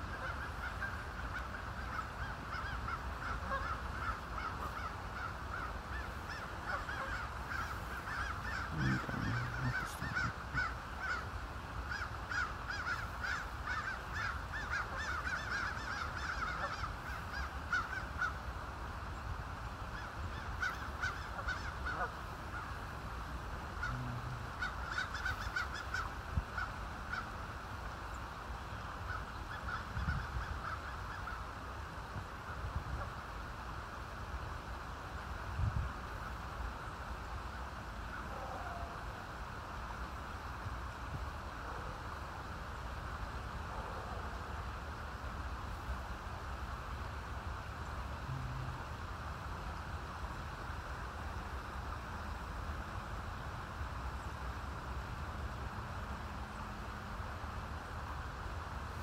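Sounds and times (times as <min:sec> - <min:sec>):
geese honking: 0:00.1 - 0:11.3, 0:11.9 - 0:18.4, 0:20.4 - 0:22.8, 0:23.6 - 0:27.3.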